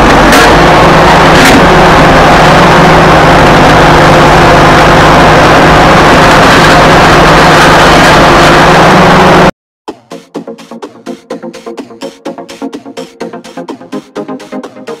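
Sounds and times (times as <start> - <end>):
bulldozer diesel engine running: 0.0 - 9.5.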